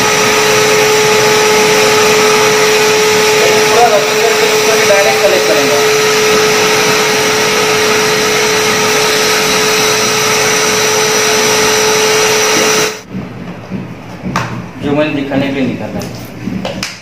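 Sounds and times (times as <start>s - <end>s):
vacuum cleaner running: 0.0s - 15.1s.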